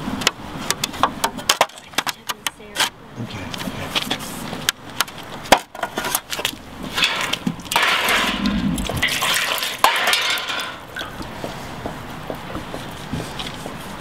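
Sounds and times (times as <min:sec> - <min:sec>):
water pouring and splashing: 0:06.9 - 0:11.4.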